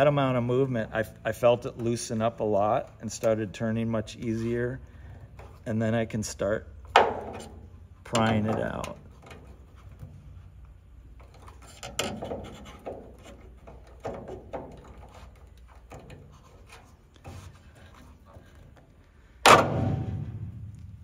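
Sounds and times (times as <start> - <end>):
light metal clicks and scrapes: 7.2 - 19.2
loud sharp metal clack: 19.4 - 20.8.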